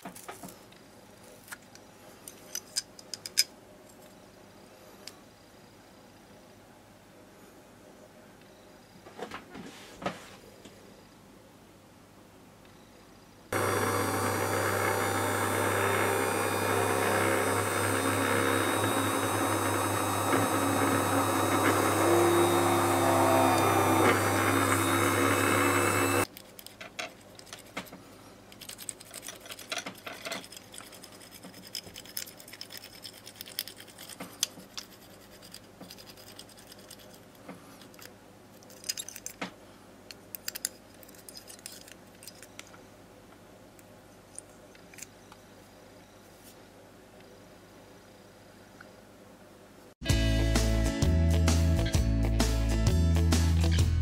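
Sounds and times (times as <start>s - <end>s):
drill press motor drilling metal: 13.6s - 26.2s.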